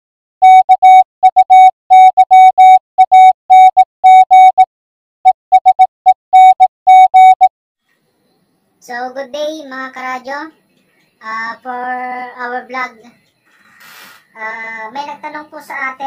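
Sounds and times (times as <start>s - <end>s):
morse code beeps: 0.4s - 4.7s, 5.5s - 7.5s.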